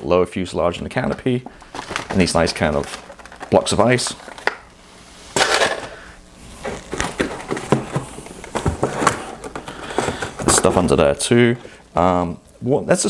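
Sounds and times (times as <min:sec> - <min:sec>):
plastic bags crinkling: 0:01.4 - 0:04.7.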